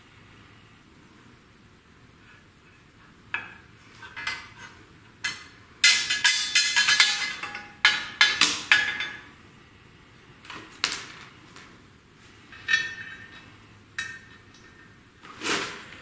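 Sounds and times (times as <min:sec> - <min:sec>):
bolts clinking against metal: 0:05.2 - 0:09.3, 0:12.5 - 0:14.9.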